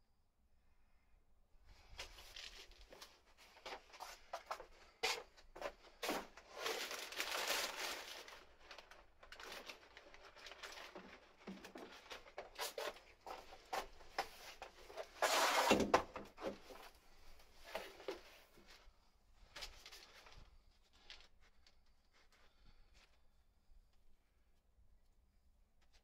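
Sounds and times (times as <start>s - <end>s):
rubber tire being handled: 10.9s - 17.0s.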